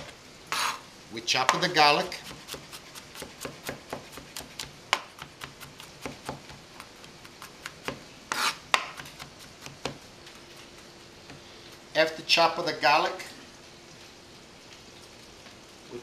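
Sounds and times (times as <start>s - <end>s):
knife scraping board: 0.5s - 0.8s, 8.3s - 9.7s
knife chopping on plastic board: 1.5s - 10.0s.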